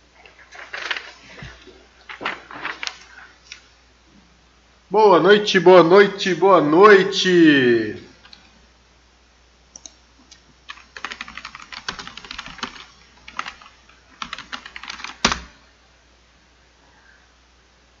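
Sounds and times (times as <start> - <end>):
typing on computer keyboard: 10.7 - 15.5.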